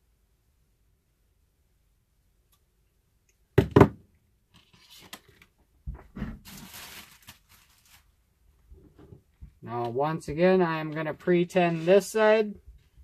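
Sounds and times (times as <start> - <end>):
scraping and rustling of wires: 6.2 - 9.2.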